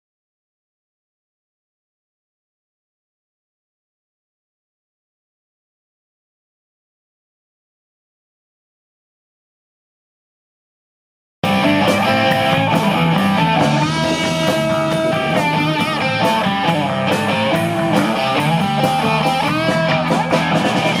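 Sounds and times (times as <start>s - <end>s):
rock band playing live: 11.4s - 21.0s.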